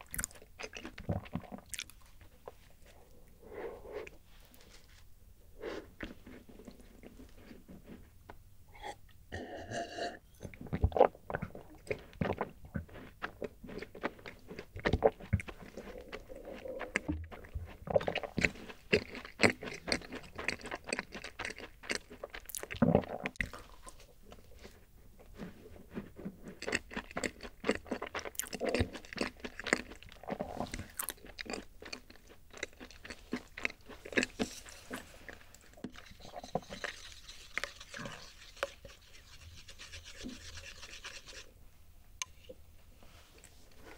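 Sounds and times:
crunching and chewing cookie: 0.0 - 2.9, 10.4 - 38.8.

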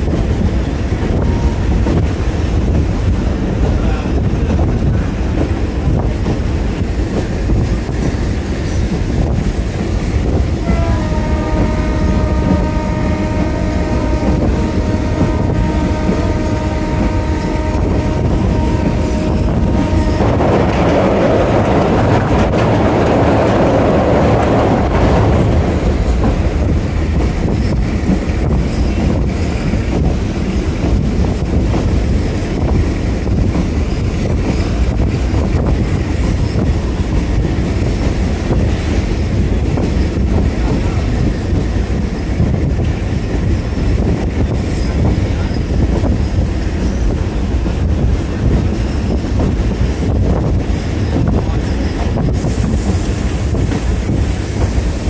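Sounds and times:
train rumbling: 0.0 - 55.0
train horn blast: 10.6 - 21.0.

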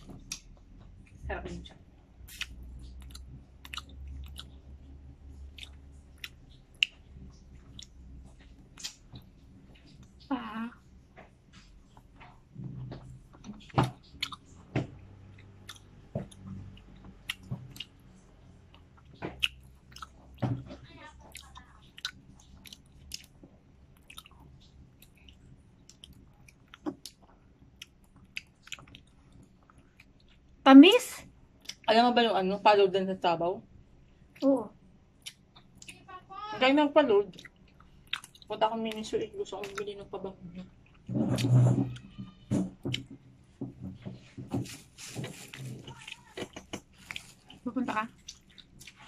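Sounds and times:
person chewing wetly: 0.0 - 1.2, 2.2 - 10.3, 11.6 - 30.6, 31.6 - 31.9, 35.1 - 36.0, 37.3 - 39.9, 40.6 - 43.2, 45.5 - 49.0.

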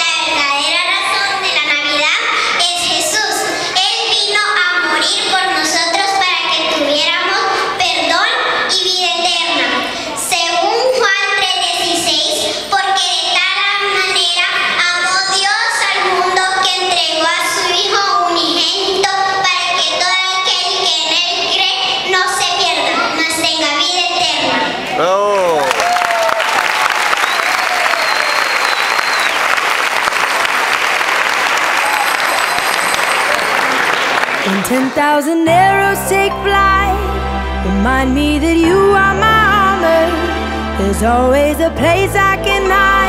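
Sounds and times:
girl singing into microphone: 0.0 - 24.7, 34.4 - 43.0
audience applauding: 25.0 - 35.0.

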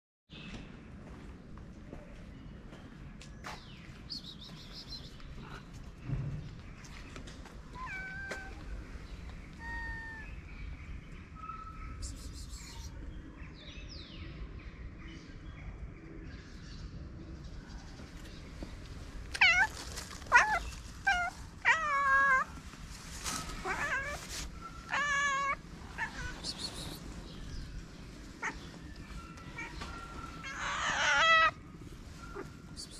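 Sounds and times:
cat meowing: 7.8 - 8.8, 9.6 - 10.4, 19.3 - 19.7, 20.3 - 22.5, 23.6 - 24.3, 24.9 - 27.0, 30.4 - 31.6.

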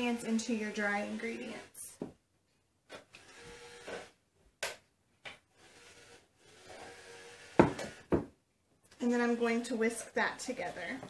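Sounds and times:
knock: 7.6 - 8.4.

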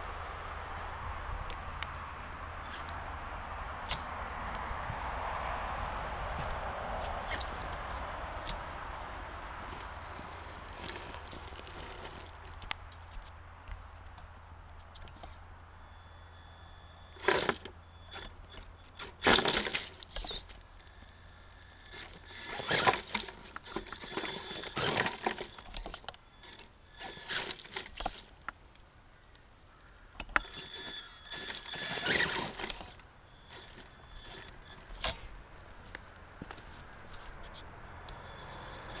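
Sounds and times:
electric motor and gears whining: 0.0 - 28.8, 29.9 - 39.0
tyres crunching over dirt and stones: 6.4 - 15.4, 17.1 - 39.0.

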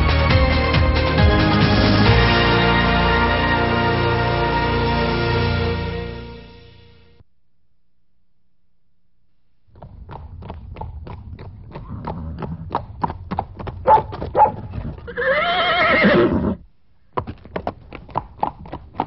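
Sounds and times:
horse hooves clip-clopping: 9.7 - 16.1, 17.1 - 19.0
horse whinnying: 14.4 - 16.6.

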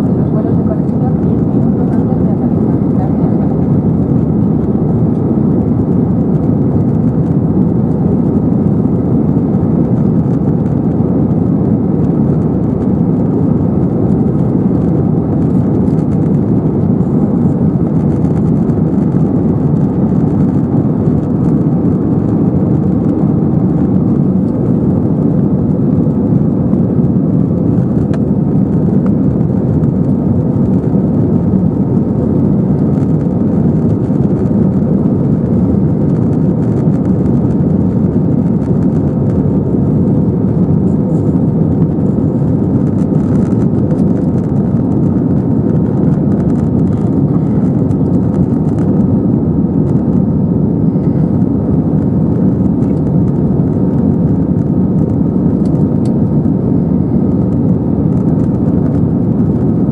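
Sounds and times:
jet engine cabin drone: 0.0 - 59.9.

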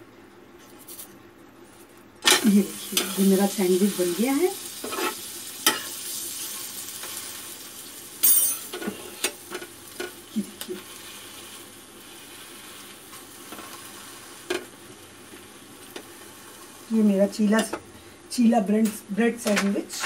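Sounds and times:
bread sizzling in butter: 2.3 - 17.5.

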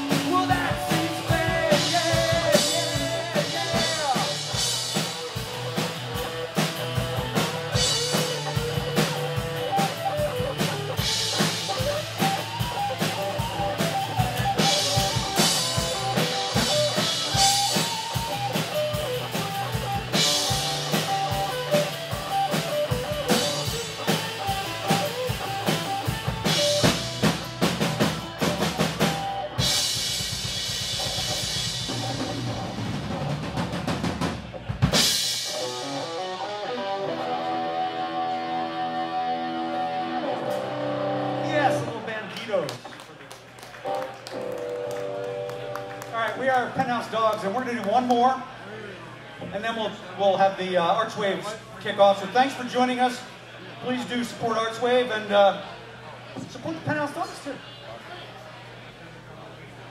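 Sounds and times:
drum kit beat: 0.0 - 38.0
live rock band playing: 0.0 - 42.5, 43.6 - 47.7.

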